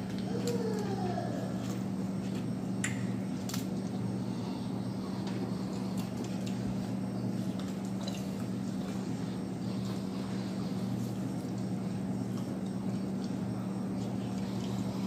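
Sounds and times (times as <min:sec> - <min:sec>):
steady low hum: 0:00.0 - 0:15.0
chewing: 0:05.1 - 0:15.0.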